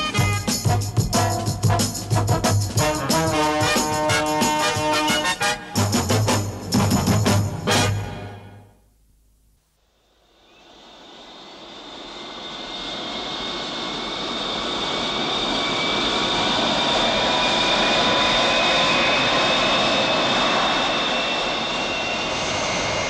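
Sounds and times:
jet engine roaring with whine: 10.4 - 23.0.

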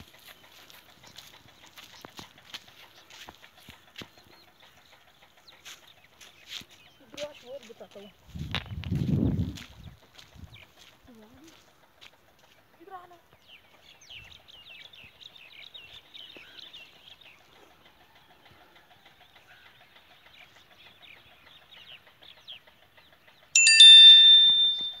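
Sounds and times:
small birds chirping: 0.0 - 25.0
loud ringing tone: 23.6 - 25.0.

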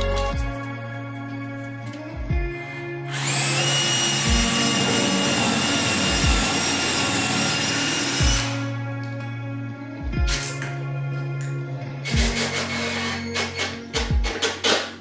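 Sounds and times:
music with slow beat: 0.0 - 15.0
electric drill boring into wood: 3.1 - 8.7, 12.0 - 14.9.

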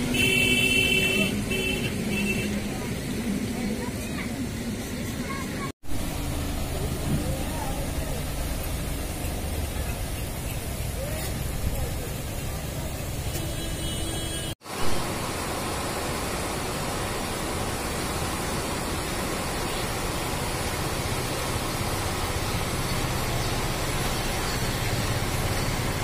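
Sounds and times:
floodwater rushing: 5.4 - 13.4, 14.6 - 26.0.

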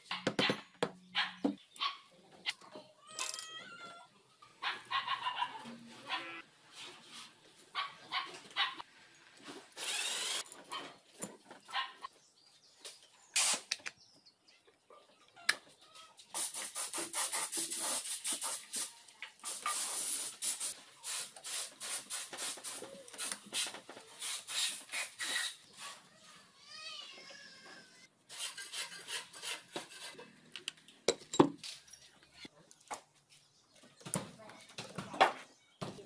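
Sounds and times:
metal parts clicking and scraping: 3.1 - 3.6
rubbing and clicking strokes: 16.3 - 18.9.

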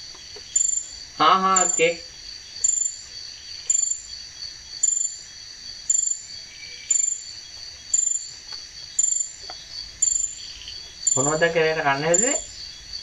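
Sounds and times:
cricket chirping: 0.0 - 13.0
high-pitched insect drone: 0.0 - 13.0.

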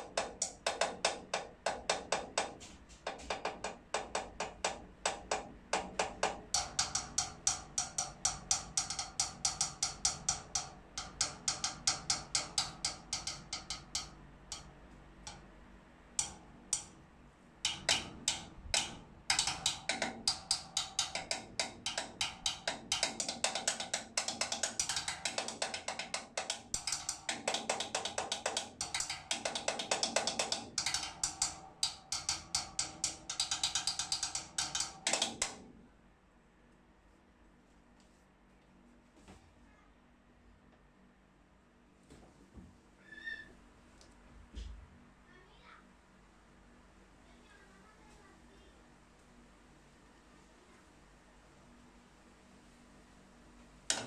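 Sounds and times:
snare drum and tom groove: 17.7 - 35.6.

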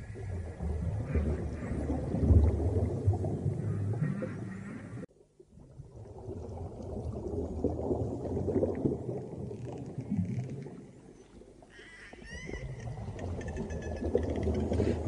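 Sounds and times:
rumbling churn of water: 0.0 - 5.0.

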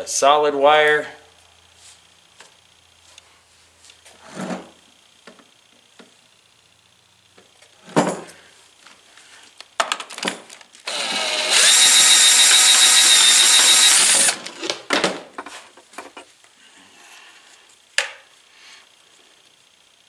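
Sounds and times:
cordless drill whining: 10.9 - 14.5.

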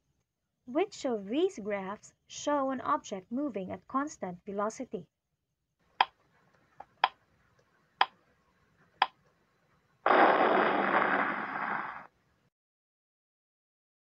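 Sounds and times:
loud burst of noise: 10.1 - 12.1.

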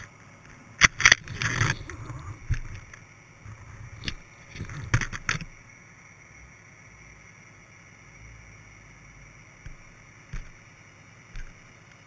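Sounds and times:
line scraping: 0.8 - 5.5.

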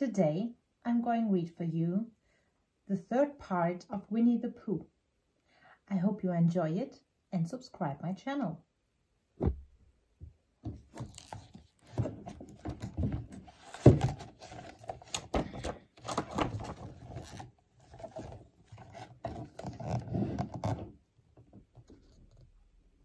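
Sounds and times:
knocks on book: 9.4 - 9.7
book cover opening: 10.8 - 20.9
paper pages turning: 10.9 - 20.8.

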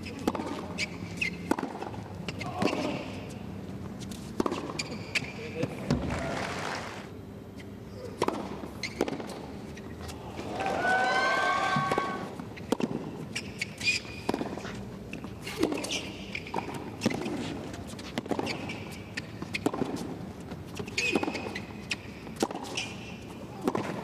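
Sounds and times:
tennis balls struck with racquets: 0.0 - 3.4, 4.1 - 6.2, 8.0 - 9.6, 11.7 - 14.7, 15.5 - 20.2, 20.8 - 24.0.

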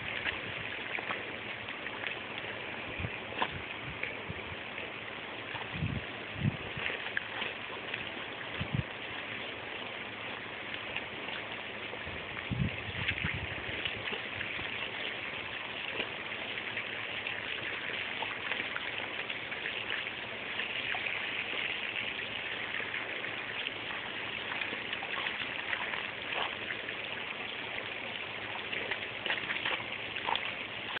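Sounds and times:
garden hose spraying water: 0.0 - 31.0
dog splashing in spray: 12.9 - 31.0.

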